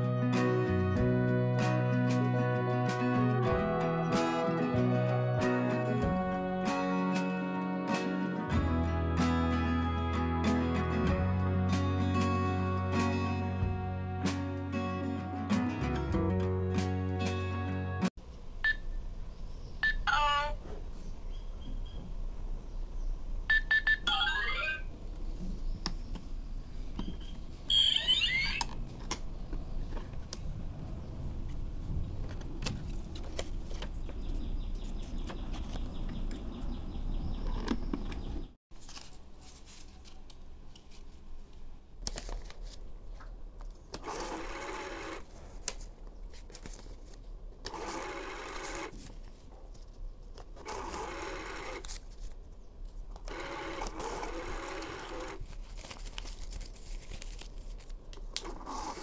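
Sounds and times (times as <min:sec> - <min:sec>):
small electric motor running: 0:53.3 - 0:55.4.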